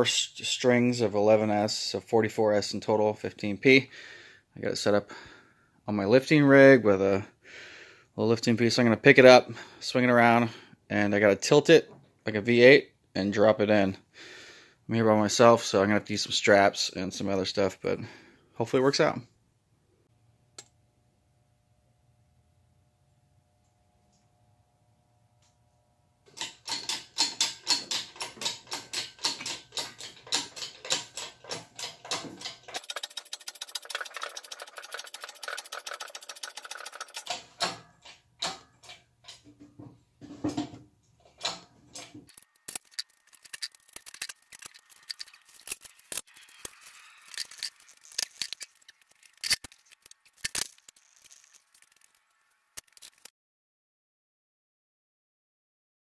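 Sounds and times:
metallic chain clicking and rattling: 26.4s - 39.5s, 41.4s - 53.3s.

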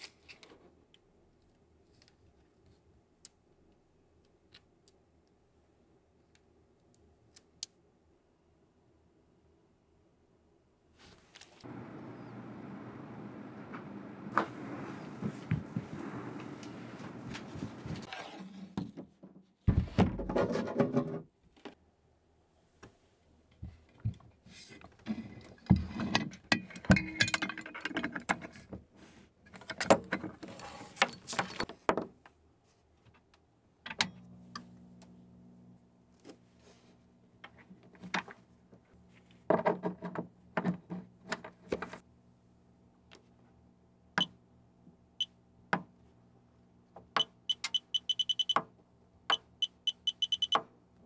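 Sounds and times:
knocks and clunks: 11.7s - 18.1s.

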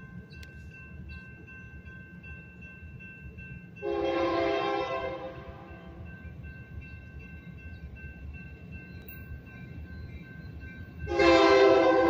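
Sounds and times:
locomotive air horn blast: 3.8s - 5.7s, 11.1s - 12.0s.

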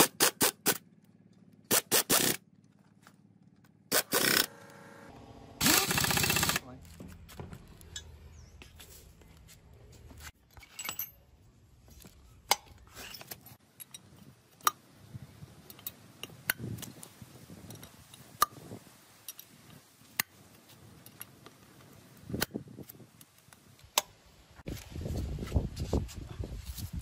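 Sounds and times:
metal tools clinking and knocking: 10.4s - 14.7s.

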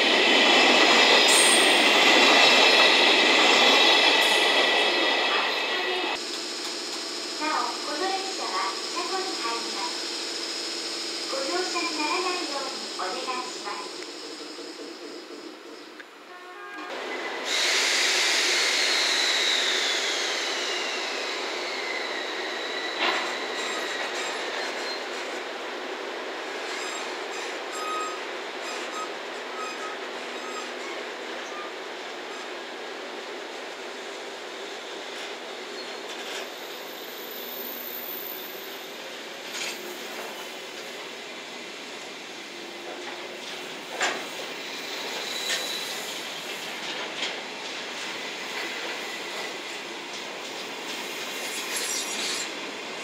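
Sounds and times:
train wheels squealing: 0.0s - 6.2s, 17.1s - 25.4s, 26.4s - 32.6s, 34.0s - 40.9s, 43.3s - 46.9s, 50.6s - 52.6s
train rolling rush: 0.0s - 53.0s.

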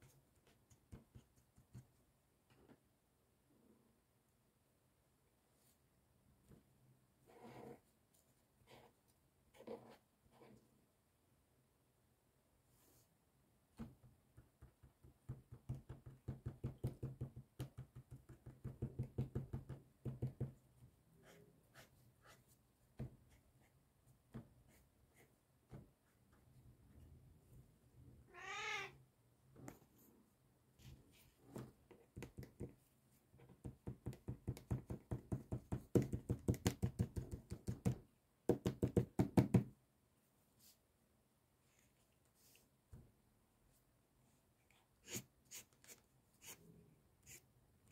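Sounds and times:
marker tapping on paper: 13.8s - 20.6s, 31.9s - 32.8s, 33.5s - 39.7s.

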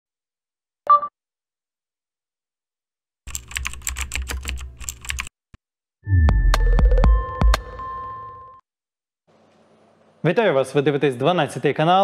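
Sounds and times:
keyboard typing clicks: 3.3s - 5.3s.

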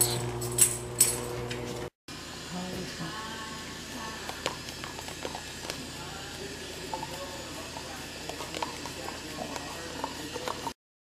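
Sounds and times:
dog licking plastic cup: 4.2s - 5.9s, 6.9s - 10.7s.

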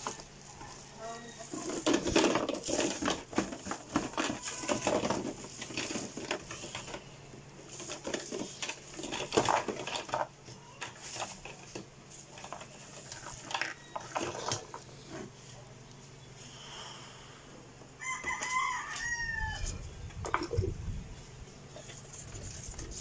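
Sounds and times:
plastic wrapping crinkling: 0.0s - 7.0s
hard plastic parts clattering: 0.0s - 15.4s.

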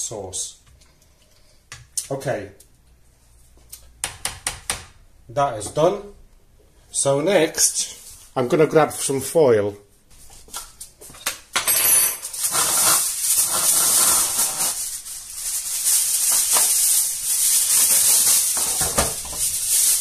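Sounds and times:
aluminium foil crinkling: 12.3s - 20.0s.

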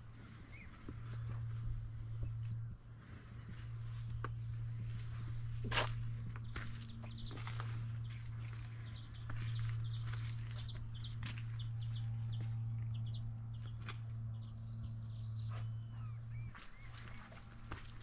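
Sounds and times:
small birds chirping: 0.0s - 18.0s
steady low hum: 0.0s - 18.0s
footsteps: 3.2s - 14.3s.

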